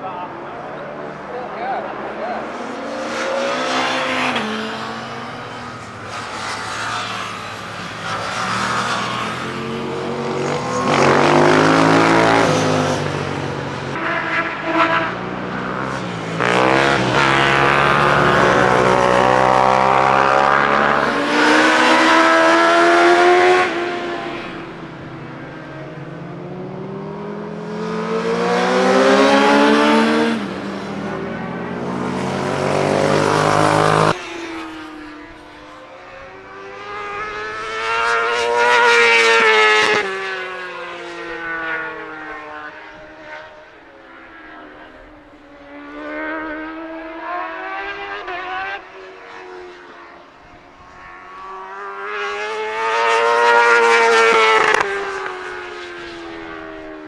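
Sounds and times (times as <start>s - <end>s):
motorcycles revving past: 2.4s - 43.4s, 50.9s - 57.0s.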